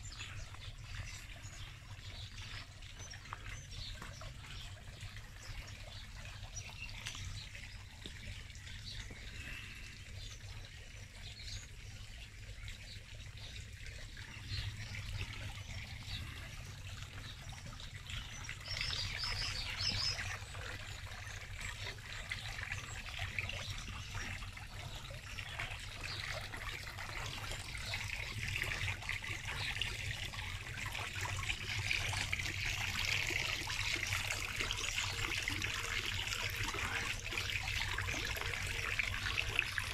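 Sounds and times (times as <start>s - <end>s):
fountain water trickling and splashing: 0.0s - 39.9s.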